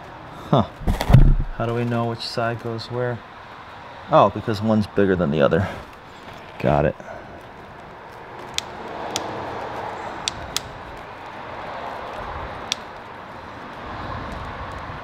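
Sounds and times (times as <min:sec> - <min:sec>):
steady low hiss: 0:00.7 - 0:02.5.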